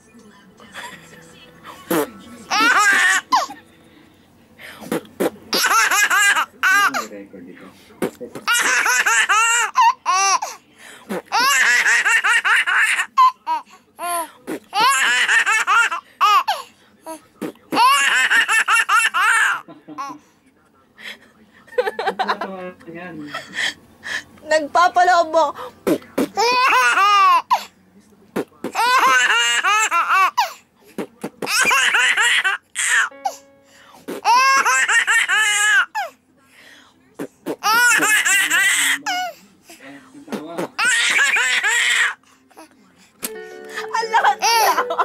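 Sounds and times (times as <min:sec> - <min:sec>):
baby boy laughing: 0:01.8 - 0:03.6, 0:05.5 - 0:07.1, 0:08.4 - 0:10.6, 0:11.2 - 0:16.6, 0:17.8 - 0:20.2, 0:26.4 - 0:27.6, 0:28.7 - 0:30.5, 0:31.4 - 0:33.1, 0:34.2 - 0:36.1, 0:37.6 - 0:39.4, 0:40.6 - 0:42.2, 0:43.7 - 0:45.0
toddler laughing: 0:01.9 - 0:03.6, 0:43.7 - 0:45.0.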